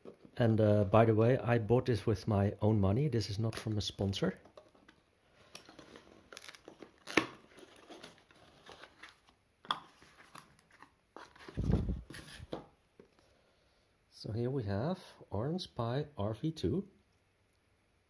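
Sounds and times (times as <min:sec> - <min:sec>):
tape crackling: 0:05.4 - 0:12.6
cardboard scraping: 0:10.0 - 0:12.6.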